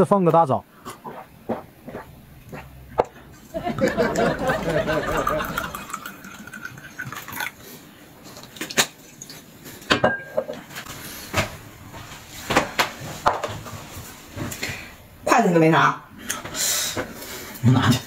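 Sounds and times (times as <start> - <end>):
tableware clicks and knocks: 9.9 - 10.6.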